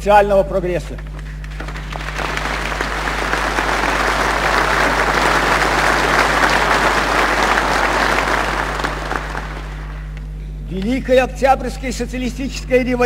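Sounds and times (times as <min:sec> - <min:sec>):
steady low hum: 0:00.0 - 0:13.0
large audience applauding: 0:01.2 - 0:10.1.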